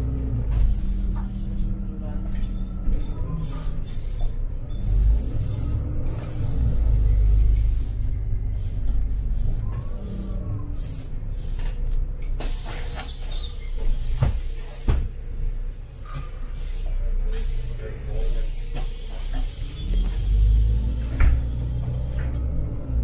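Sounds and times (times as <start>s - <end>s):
bus diesel engine rumble: 0.0s - 23.0s
compressed air hiss: 3.4s - 5.0s, 6.1s - 11.7s, 12.4s - 14.9s, 16.5s - 21.8s.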